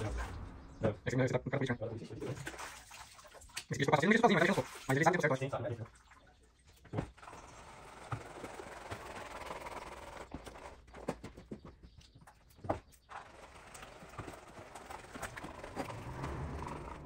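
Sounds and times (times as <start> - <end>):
template scraping over wet plaster: 6.9 - 11.1, 13.0 - 17.0.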